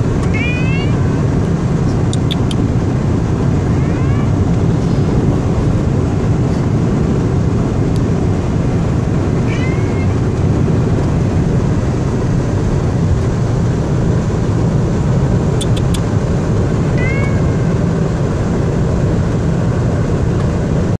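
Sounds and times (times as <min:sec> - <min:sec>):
car road and engine noise: 0:00.0 - 0:21.0
cat meowing: 0:00.2 - 0:01.2, 0:03.6 - 0:04.6, 0:09.4 - 0:10.2, 0:16.9 - 0:17.8.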